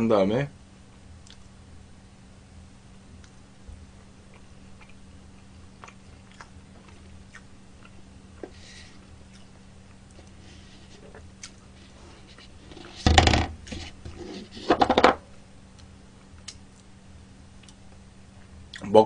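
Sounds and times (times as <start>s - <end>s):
chewing: 1.2s - 1.5s, 4.3s - 8.1s, 9.2s - 11.7s
cup scraping on tabletop: 12.2s - 15.1s.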